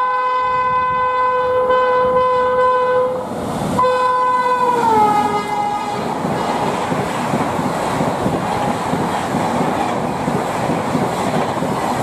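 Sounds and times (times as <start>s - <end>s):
locomotive horn: 0.0s - 3.2s, 3.8s - 6.6s
passing train coaches rushing: 0.0s - 12.0s.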